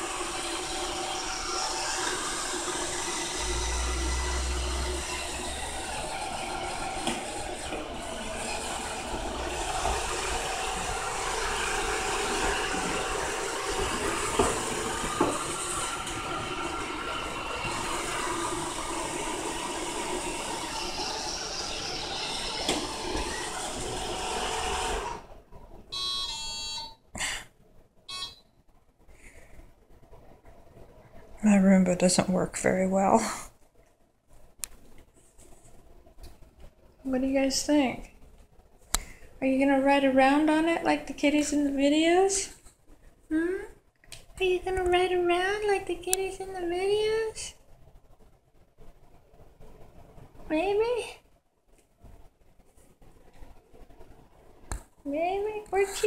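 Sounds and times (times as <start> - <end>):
robot vacuum whirring: 0.0 - 25.3
short beeping tones: 26.0 - 27.0, 28.1 - 28.5.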